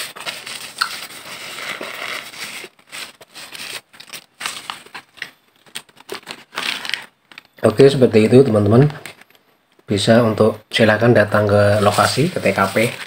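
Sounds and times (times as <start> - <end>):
paper wrapper rustling and crinkling: 0.0 - 7.6, 11.7 - 13.0.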